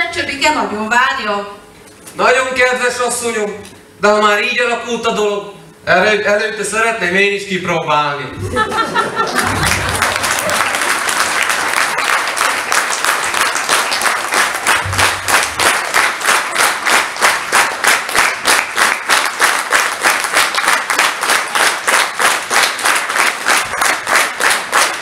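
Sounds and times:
audience clapping in unison: 0:09.1 - 0:25.0.

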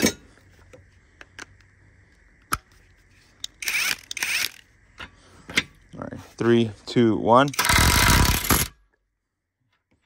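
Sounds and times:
sharp metal clicks: 0:07.4 - 0:08.8.

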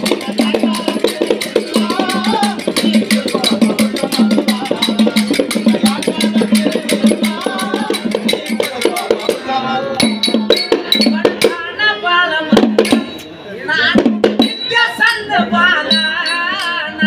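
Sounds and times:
hand percussion strokes: 0:00.0 - 0:11.6.

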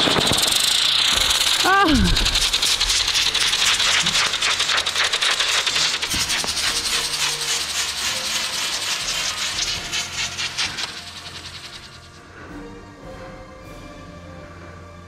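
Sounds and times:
rocket motors crackling hiss: 0:00.0 - 0:12.2.

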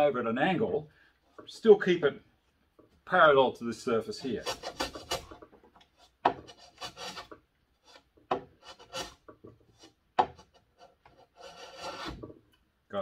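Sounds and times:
hand plane scraping wood: 0:04.1 - 0:12.3.

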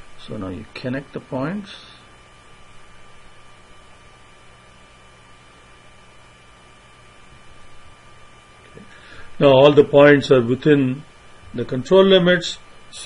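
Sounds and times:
electrical mains hum: 0:00.0 - 0:13.0
faint high-pitched whine: 0:00.0 - 0:13.0.

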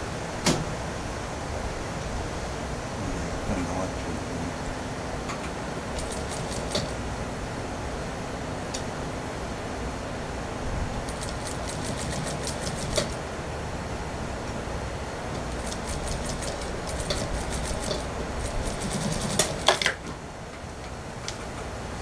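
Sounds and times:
sewing machine motor hum: 0:05.9 - 0:07.0, 0:11.0 - 0:13.3, 0:15.3 - 0:19.9
sewing machine rapid ticking: 0:06.0 - 0:06.9, 0:11.0 - 0:13.2, 0:15.5 - 0:19.8.

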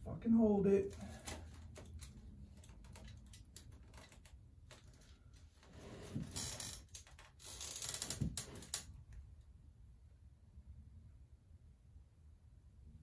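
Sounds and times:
aluminium foil crinkling: 0:01.0 - 0:08.9.

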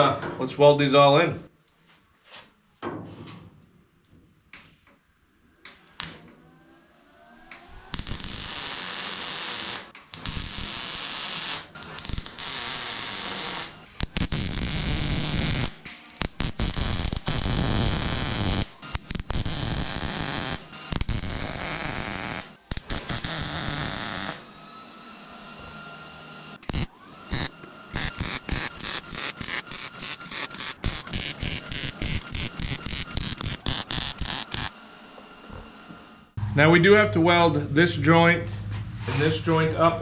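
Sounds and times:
welder crackling: 0:07.9 - 0:24.4, 0:26.6 - 0:34.7.

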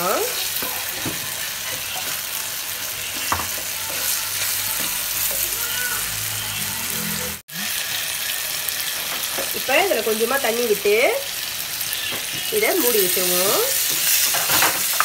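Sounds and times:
food sizzling in oil: 0:00.0 - 0:15.0.

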